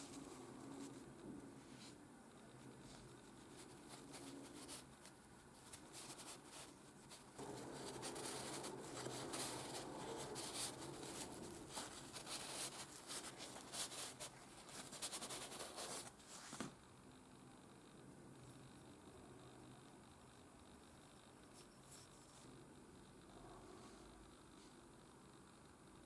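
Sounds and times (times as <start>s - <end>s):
paper towel rubbing wood: 5.7s - 16.1s.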